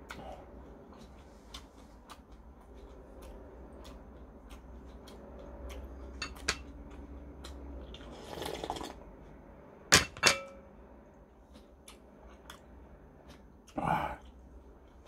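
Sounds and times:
slurp: 0:08.1 - 0:09.0.

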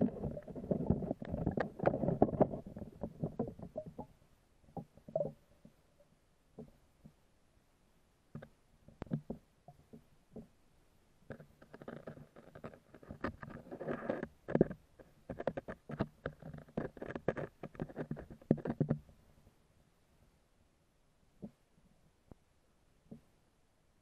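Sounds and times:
underwater clicks and knocks: 0:00.0 - 0:05.8, 0:08.3 - 0:10.6, 0:11.2 - 0:19.2, 0:21.4 - 0:21.6, 0:23.1 - 0:23.3.

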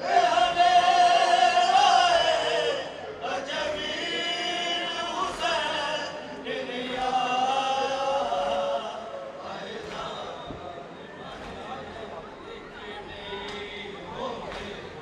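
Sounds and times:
voices chanting a lament: 0:00.0 - 0:15.0.

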